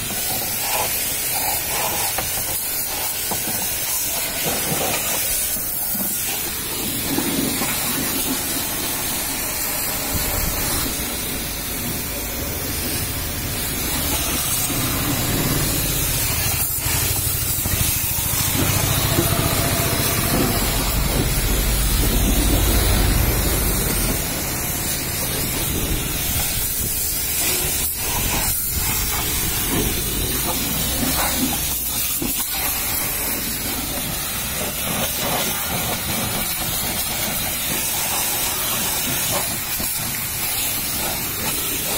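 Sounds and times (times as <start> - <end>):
pressure washer jet hissing: 0.0 - 41.9.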